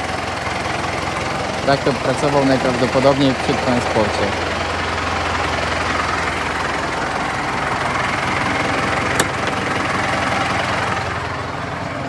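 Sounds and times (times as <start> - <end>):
tractor diesel engine idling: 0.0 - 12.0
sharp click: 9.2 - 9.5.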